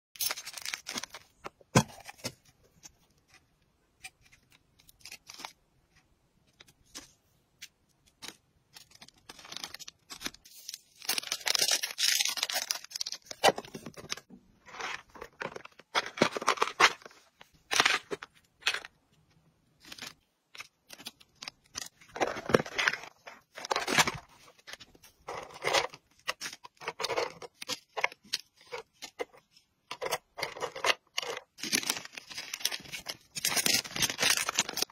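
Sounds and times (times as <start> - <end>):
plastic bags crinkling: 8.8 - 17.2, 30.7 - 34.9.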